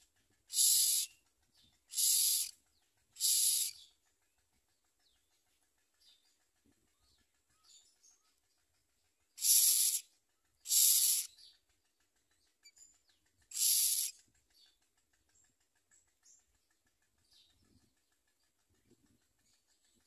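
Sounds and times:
nestlings harsh begging calls: 0.5s - 1.2s, 1.9s - 4.0s, 9.4s - 11.4s, 13.5s - 14.2s.

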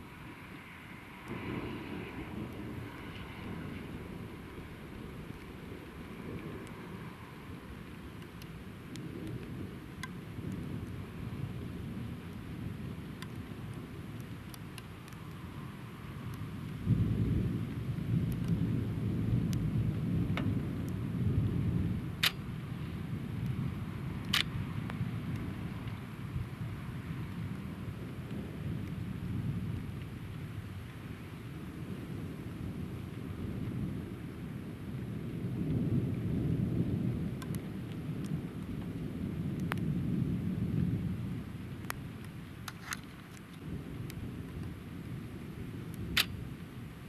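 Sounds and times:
distant thunder rumbling: 16.2s - 30.2s, 31.7s - 42.6s
sharp clicks: 46.2s - 46.4s.

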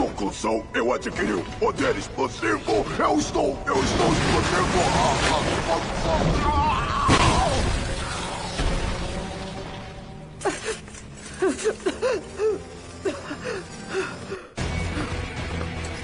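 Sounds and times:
dramatic background music: 0.0s - 16.0s
cartoon explosion blast: 3.8s - 9.8s.

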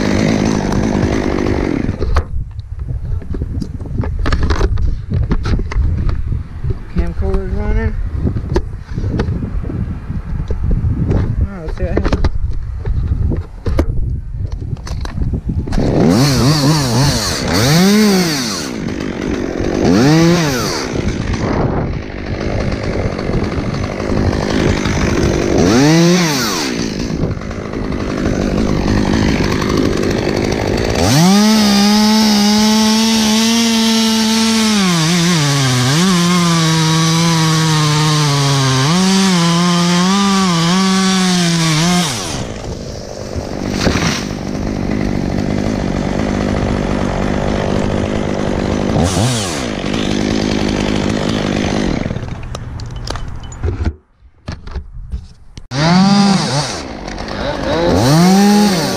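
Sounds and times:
chainsaw cutting wood: 0.0s - 2.4s, 14.8s - 54.1s, 55.6s - 58.9s.

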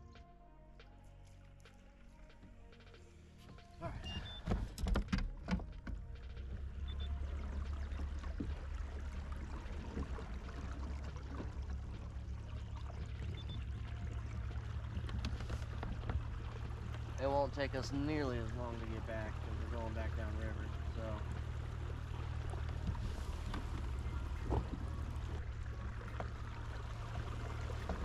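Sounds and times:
low rumble: 0.0s - 28.0s
water washing past hull: 6.3s - 28.0s.

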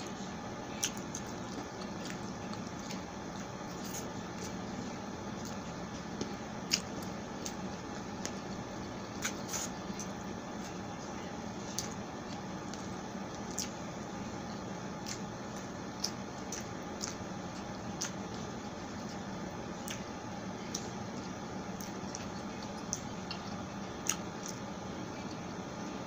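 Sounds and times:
background hiss and hum: 0.0s - 26.0s
close chewing: 0.7s - 10.8s, 11.6s - 13.8s, 14.4s - 19.2s.

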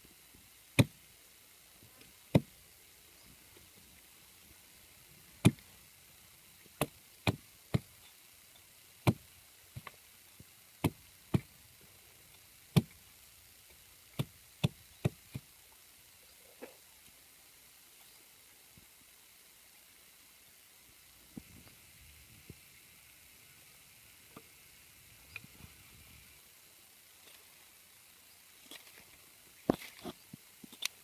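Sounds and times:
hatchet chopping wood: 0.8s - 1.0s, 2.3s - 2.5s, 5.4s - 5.7s, 6.8s - 8.0s, 9.0s - 9.9s, 10.8s - 11.5s, 12.7s - 13.0s, 14.1s - 15.5s.

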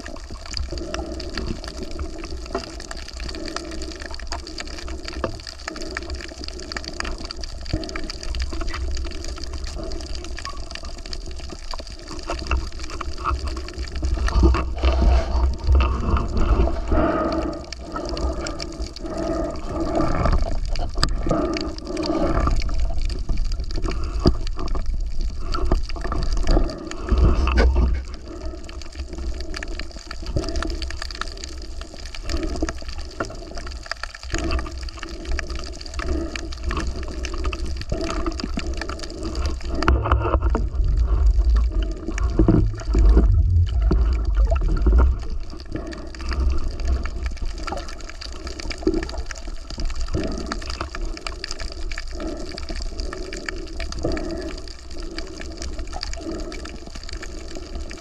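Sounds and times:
crackling: 0.0s - 58.0s
water sloshing and gurgling: 0.0s - 58.0s
deep water surges: 39.1s - 47.8s.

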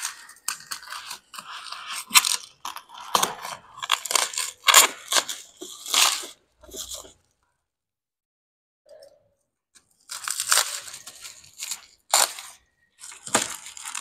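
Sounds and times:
plastic wrapping crinkling: 10.1s - 14.0s.

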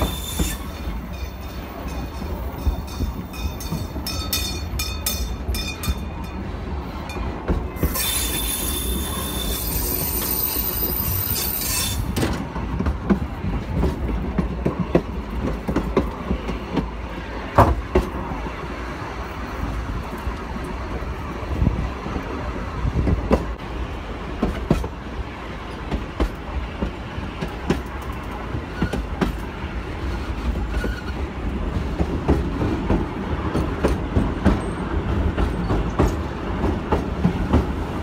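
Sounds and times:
wheels squealing: 0.0s - 1.6s, 7.8s - 12.2s
train rolling over track: 0.0s - 38.0s.

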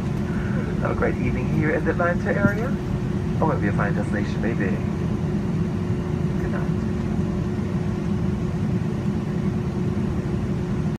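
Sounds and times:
constant cabin hum: 0.0s - 11.0s
idling jet engines rumble: 0.0s - 11.0s.

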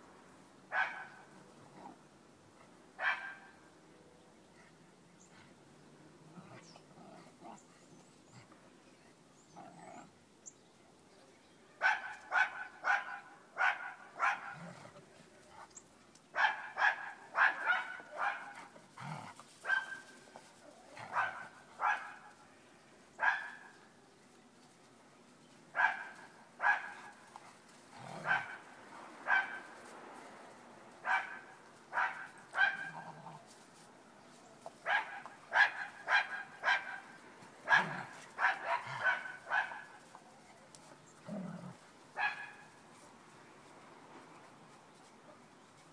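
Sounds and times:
dogs barking in short bursts: 0.7s - 1.4s, 3.0s - 3.6s, 11.8s - 14.9s, 16.3s - 20.2s, 21.0s - 22.4s, 23.2s - 23.8s, 25.7s - 27.3s, 28.1s - 29.8s, 31.0s - 33.4s, 34.8s - 40.0s, 42.2s - 42.8s.

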